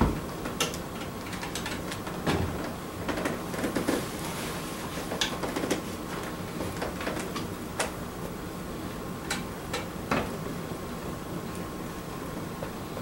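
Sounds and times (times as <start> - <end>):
wood fire crackling and popping: 0.2 - 4.0.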